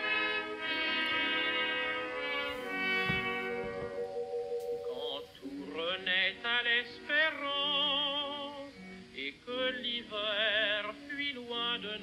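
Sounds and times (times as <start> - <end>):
musical accompaniment: 0.0 - 9.3
person singing with vibrato: 4.0 - 12.0.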